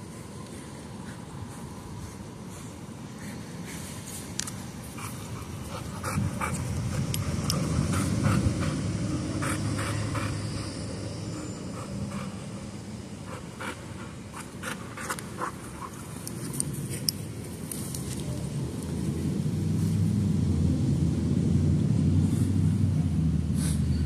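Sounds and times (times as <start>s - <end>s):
dog panting: 4.8s - 17.2s.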